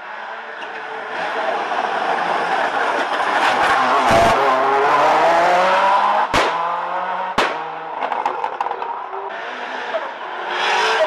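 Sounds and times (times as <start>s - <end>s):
rally car engine accelerating hard: 1.1s - 8.0s
sharp bangs: 6.1s - 8.6s.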